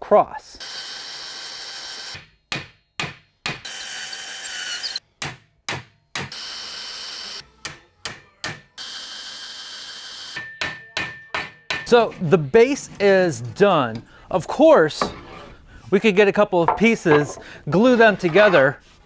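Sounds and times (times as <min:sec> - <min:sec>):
cordless drill boring into wood: 0:03.7 - 0:05.0.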